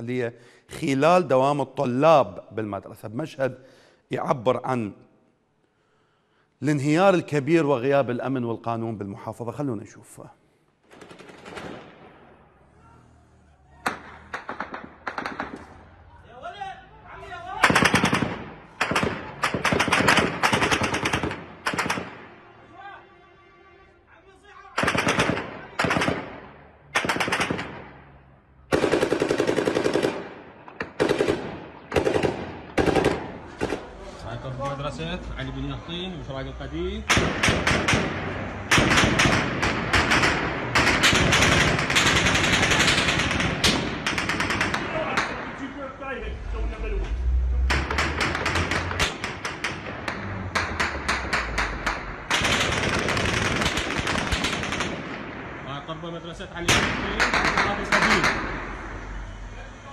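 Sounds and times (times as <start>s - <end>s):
automatic gunfire bursts: 17.6s - 22.1s, 28.7s - 30.3s, 31.0s - 33.8s, 38.7s - 45.0s, 52.3s - 55.1s.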